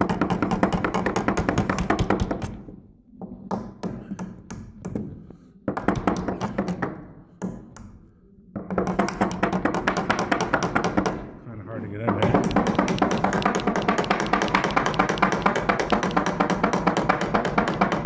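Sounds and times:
hammer tapping staple into wood: 12.1s - 18.0s.

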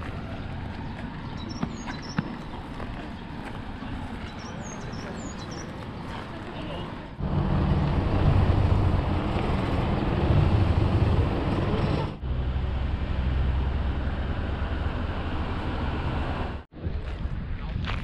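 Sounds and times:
rushing wind: 0.0s - 18.0s
engine running: 7.1s - 16.7s.

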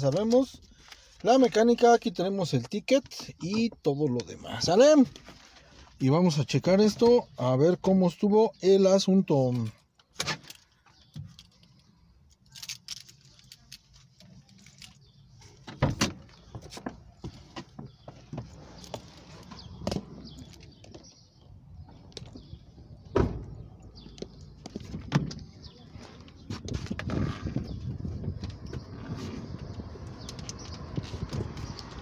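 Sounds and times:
car door opening and shutting: 15.6s - 21.1s, 23.0s - 23.7s.

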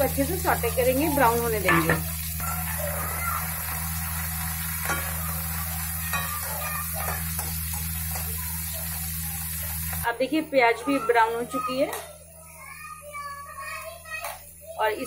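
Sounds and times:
onions sizzling in oil: 0.0s - 15.0s
metal spoon scraping a pan: 1.6s - 2.3s, 4.8s - 8.2s.

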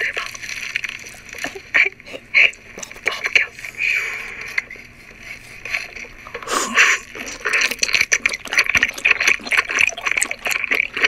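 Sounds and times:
wet chewing sounds: 0.0s - 11.0s.

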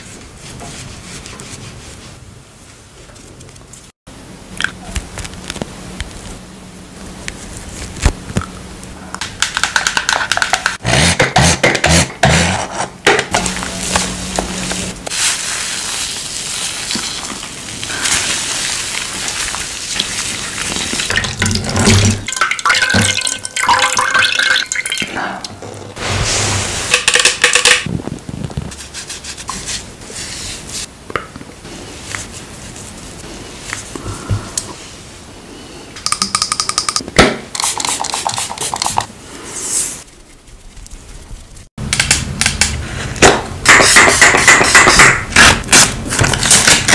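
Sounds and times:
hands rubbing foaming cleanser: 37.6s - 39.1s.

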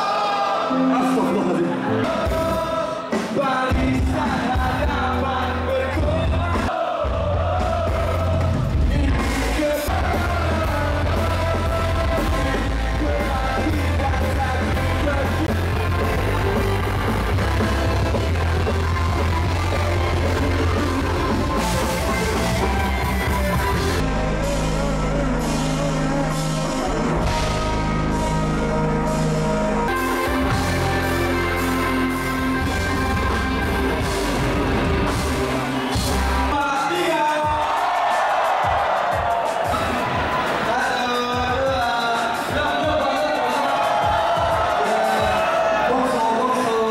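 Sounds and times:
crowd yelling along: 0.0s - 3.4s, 5.7s - 27.6s, 29.8s - 46.9s
person singing: 0.0s - 21.9s
live rock band playing: 0.0s - 46.9s.

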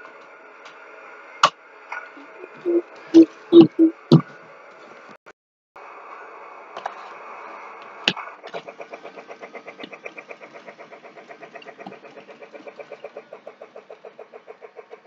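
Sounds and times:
toy train chuffing: 8.3s - 15.0s.

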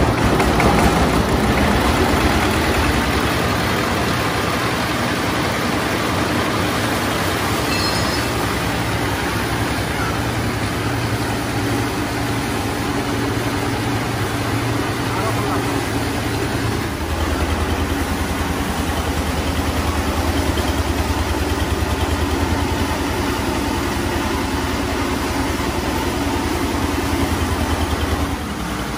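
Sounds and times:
small diesel engine running: 0.0s - 28.9s
thresher drum spinning: 0.0s - 28.9s.

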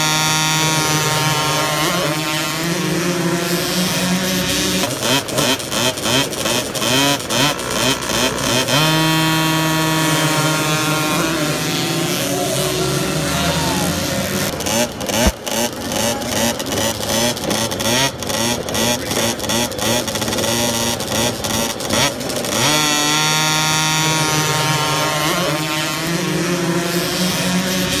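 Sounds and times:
motocross bike engines revving: 0.0s - 28.0s.

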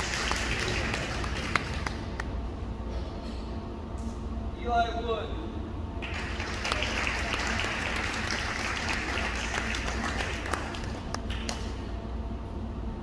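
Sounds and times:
audience applauding: 0.0s - 2.3s, 6.0s - 11.7s.

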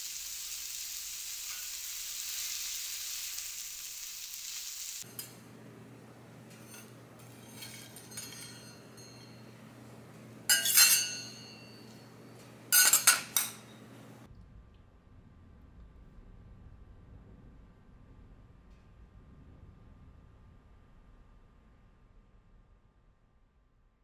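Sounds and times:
frying sizzle: 0.0s - 5.3s
tableware clinking: 6.5s - 9.7s, 10.5s - 13.9s.

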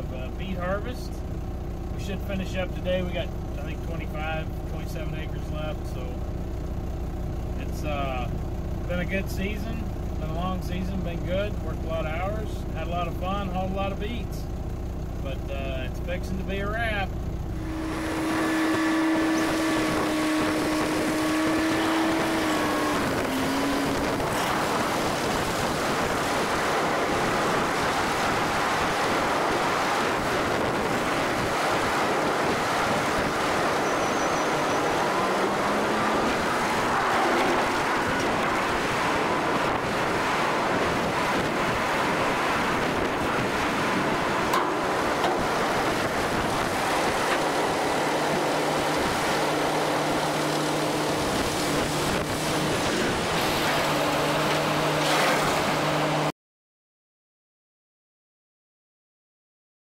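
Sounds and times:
machinery motor tone: 17.1s - 53.5s.

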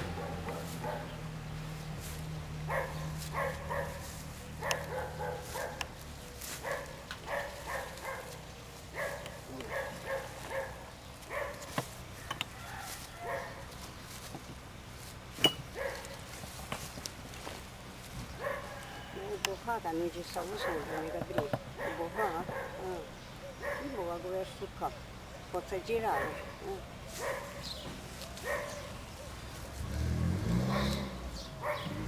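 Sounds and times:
dog barking: 0.1s - 1.2s, 2.7s - 5.9s, 6.6s - 11.7s, 12.7s - 13.6s, 15.7s - 16.2s, 18.4s - 19.1s, 20.5s - 21.2s, 21.8s - 24.0s, 26.0s - 27.7s, 28.4s - 29.0s, 30.7s - 31.0s, 31.6s - 32.0s.

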